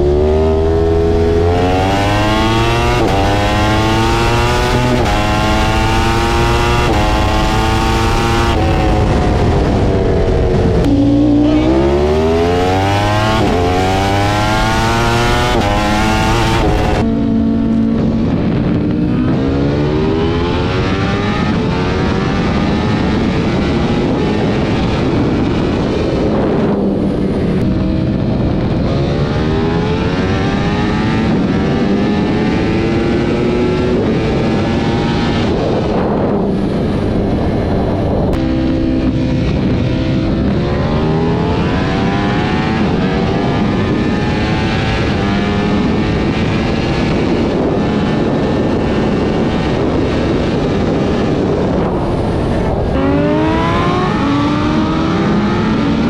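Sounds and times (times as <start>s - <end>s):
motorcycle engine at full throttle: 0.0s - 56.0s
wind rush: 0.0s - 56.0s.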